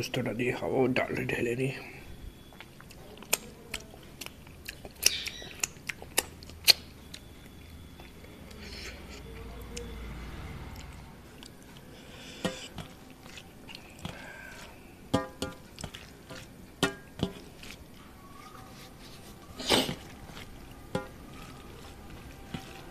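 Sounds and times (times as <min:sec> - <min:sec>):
food poured and mixed by hand: 0:07.7 - 0:22.9.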